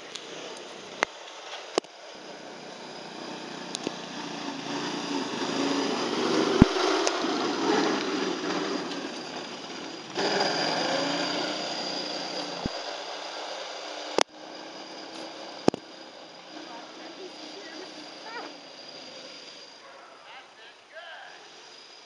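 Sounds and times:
snowmobile engine driving past: 0:00.0 - 0:22.0.

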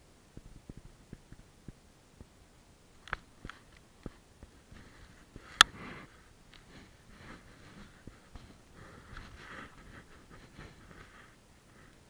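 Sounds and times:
jacket fabric rustling: 0:03.3 - 0:11.9.

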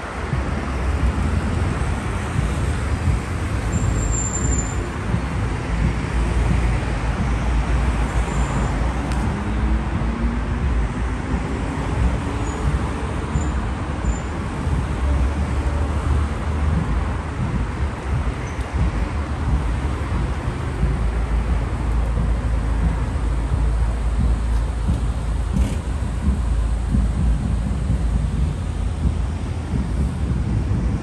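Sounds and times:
cars driving past: 0:00.0 - 0:31.0.

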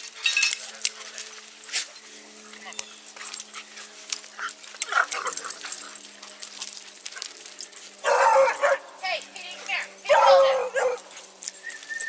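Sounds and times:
dog barking: 0:08.0 - 0:08.9, 0:10.1 - 0:11.1
dog whines and yips: 0:10.2 - 0:12.0.

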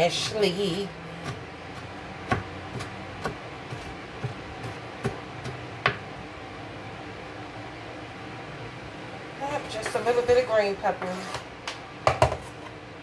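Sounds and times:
knife chopping on cutting board: 0:01.2 - 0:06.0, 0:12.1 - 0:12.5.

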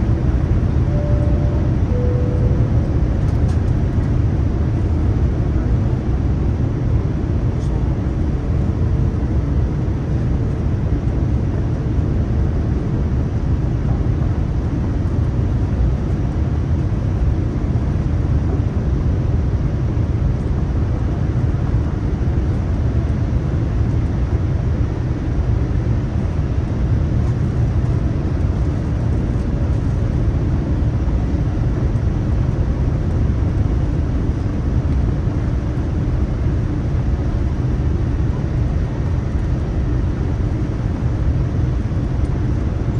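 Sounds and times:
airliner cabin engine rumble: 0:00.0 - 0:42.9.

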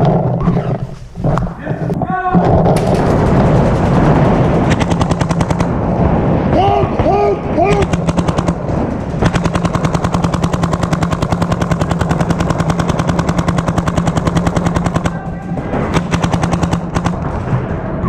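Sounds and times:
paintball marker firing rapidly: 0:02.5 - 0:05.8, 0:06.7 - 0:17.4.

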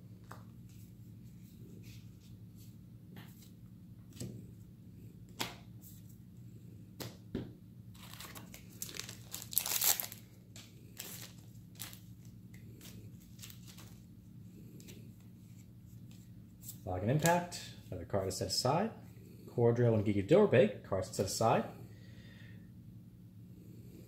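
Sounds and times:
low steady hum: 0:00.0 - 0:24.0
foil wrapper crinkling and tearing: 0:07.9 - 0:14.0.

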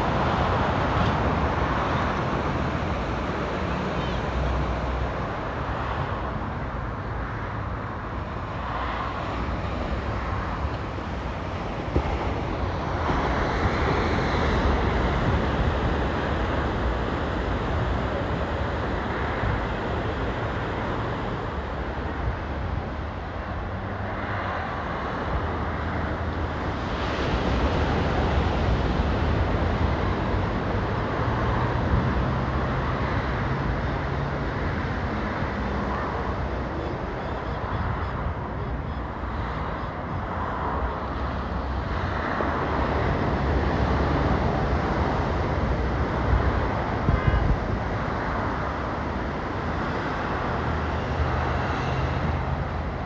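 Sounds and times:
cars passing on highway: 0:00.0 - 0:53.0
wind on microphone: 0:40.1 - 0:53.0.

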